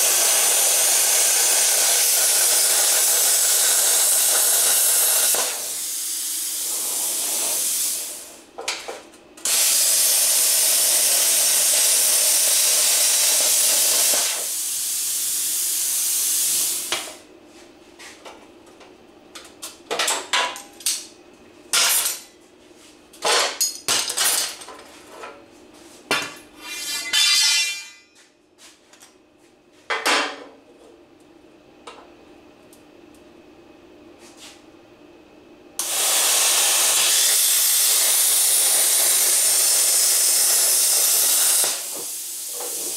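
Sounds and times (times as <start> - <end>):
plasma cutter hissing: 0.0 - 8.4, 9.5 - 16.9, 35.8 - 42.9
metal clanks and knocks: 26.1 - 28.2.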